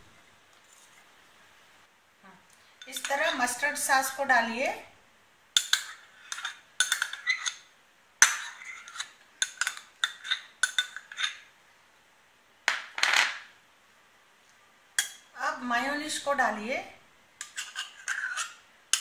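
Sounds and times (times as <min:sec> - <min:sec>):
metal spoon clinking dishes: 0:02.8 - 0:03.5, 0:05.6 - 0:07.6, 0:08.2 - 0:11.5, 0:15.0 - 0:15.3, 0:17.4 - 0:19.0
spoon scraping dish: 0:05.6 - 0:11.5, 0:17.4 - 0:19.0.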